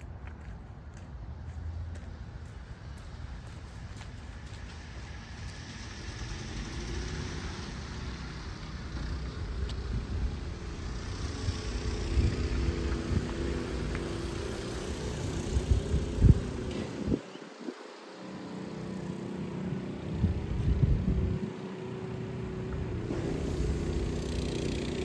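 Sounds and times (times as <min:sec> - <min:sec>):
low road rumble: 0:00.0 - 0:25.0
vehicle engine running: 0:18.6 - 0:25.0.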